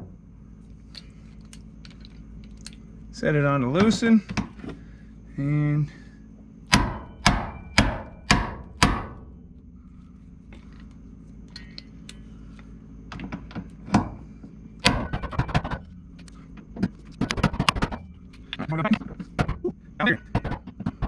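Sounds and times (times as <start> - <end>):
hammer striking impact driver: 6.7 - 9.2.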